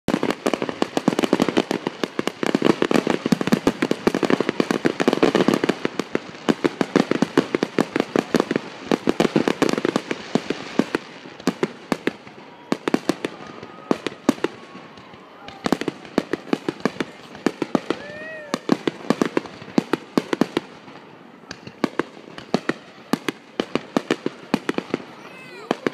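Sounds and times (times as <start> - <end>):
fireworks bangs: 0.1 - 25.9.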